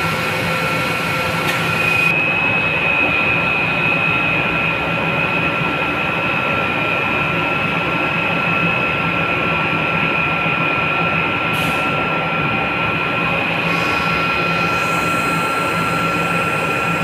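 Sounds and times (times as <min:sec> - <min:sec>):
machine drone with high whine: 0:00.0 - 0:17.0.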